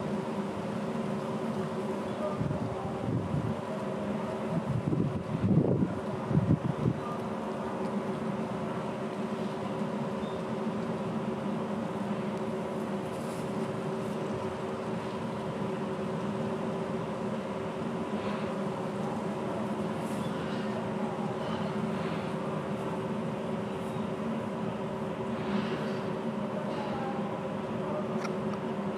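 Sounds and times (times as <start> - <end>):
wind on microphone: 4.6 - 7.0.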